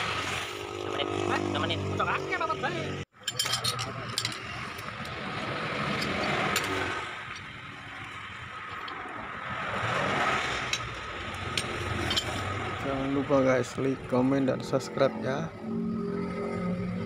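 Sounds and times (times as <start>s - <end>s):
metal wrench clicks and clinks: 3.2s - 5.2s, 10.7s - 12.5s.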